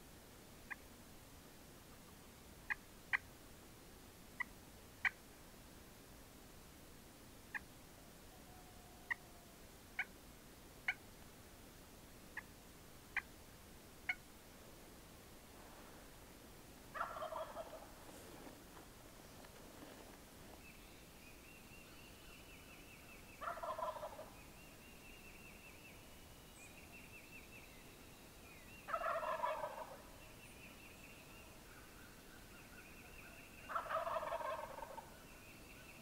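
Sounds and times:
wild turkey gobbling: 2.7s - 3.2s, 4.4s - 5.2s, 8.3s - 10.1s, 14.0s - 14.2s, 16.9s - 18.5s, 23.3s - 24.4s, 28.8s - 30.2s, 31.6s - 35.3s.

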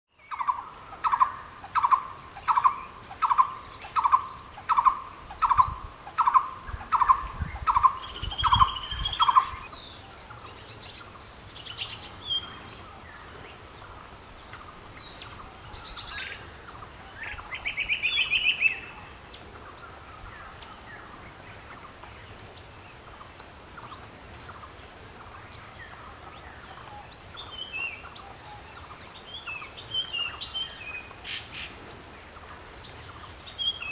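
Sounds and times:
high bird chirps and twitters: 0.2s - 9.8s
bird repeating low call: 0.3s - 9.7s.

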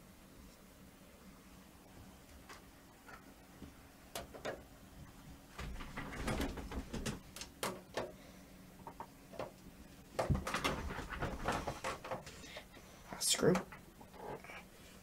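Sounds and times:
plastic fan knocking in metal case: 5.6s - 8.2s, 10.2s - 12.3s.

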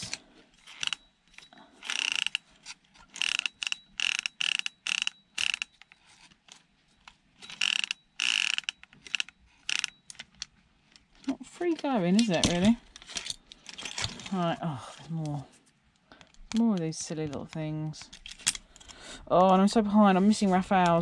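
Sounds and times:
ratcheting screwdriver clicking: 0.0s - 1.0s, 1.8s - 2.4s, 3.1s - 5.9s, 7.4s - 10.5s.

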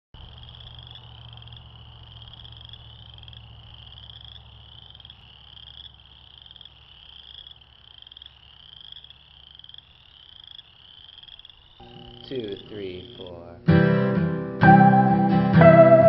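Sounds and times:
frogs calling in trills: 0.2s - 13.7s
low steady hum: 11.8s - 13.7s.

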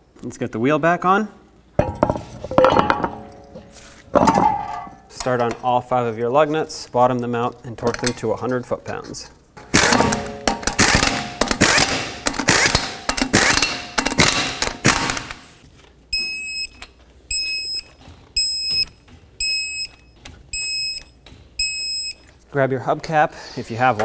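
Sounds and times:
air impact gun rattling: 9.6s - 15.5s.

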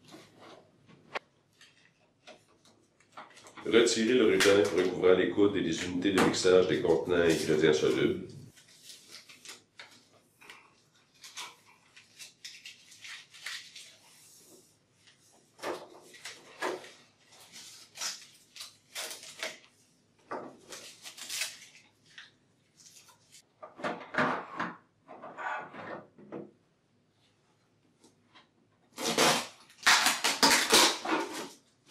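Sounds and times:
tape being peeled off: 11.1s - 14.1s, 17.4s - 19.8s, 20.7s - 23.4s, 29.0s - 31.6s.

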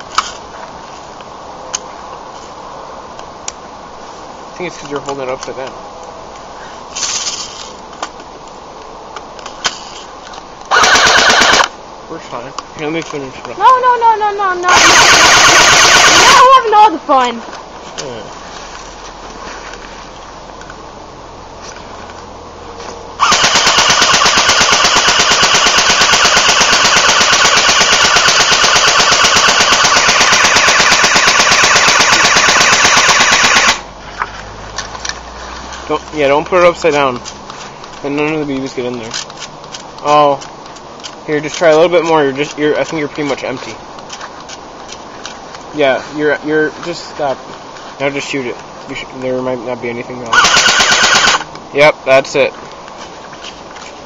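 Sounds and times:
airsoft gun hissing burst: 10.7s - 11.7s, 14.7s - 16.5s, 23.2s - 33.8s, 50.3s - 51.4s
rapid automatic clicking shots: 10.7s - 11.7s, 14.7s - 16.4s, 23.2s - 33.8s, 50.3s - 51.4s.

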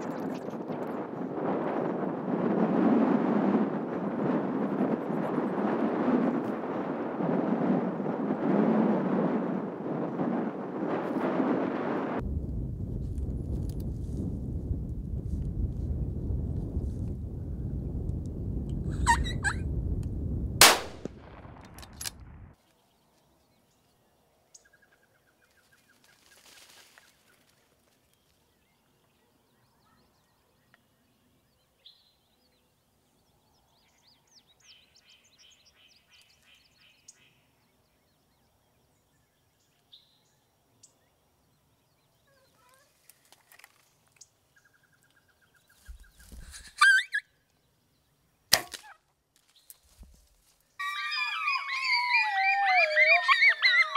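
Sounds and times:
rifle shot: 20.6s - 22.4s
high-pitched calls: 46.6s - 47.3s, 50.8s - 53.9s
faint calls: 50.8s - 53.9s.

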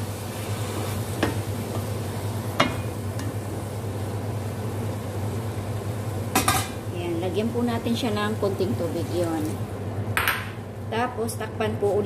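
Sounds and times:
spatula stirring leaves in pot: 0.0s - 3.5s.

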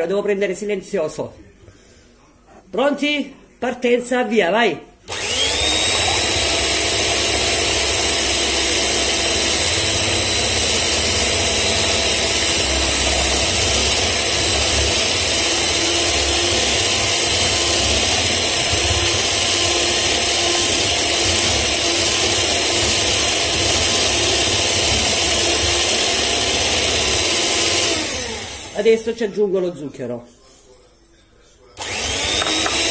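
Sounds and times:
electric mixer whining: 5.1s - 29.0s, 31.8s - 32.9s.

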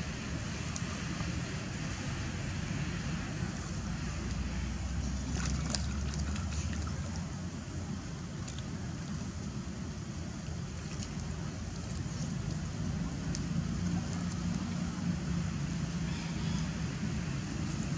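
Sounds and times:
light water splashes: 0.0s - 17.9s
low outdoor rumble: 0.0s - 17.9s.

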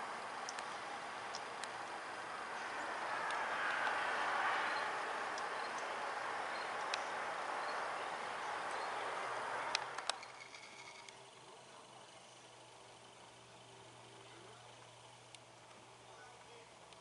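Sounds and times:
outdoor background hiss: 0.0s - 17.0s
faint sharp ticks: 0.4s - 2.0s, 2.6s - 4.1s, 4.7s - 7.8s, 9.6s - 10.3s.

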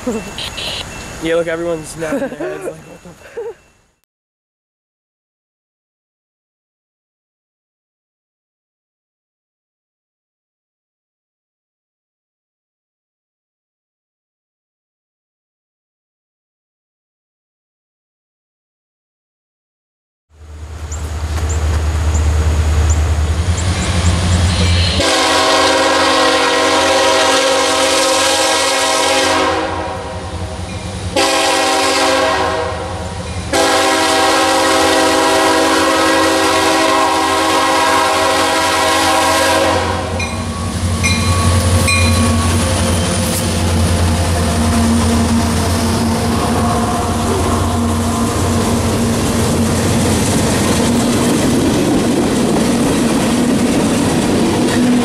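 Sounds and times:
locomotive engine rumble: 0.0s - 3.6s, 20.4s - 27.7s, 37.4s - 55.0s
locomotive air horn blasts: 24.8s - 30.4s, 31.1s - 42.6s, 44.4s - 48.8s
train wheels clattering on rails: 47.8s - 55.0s.

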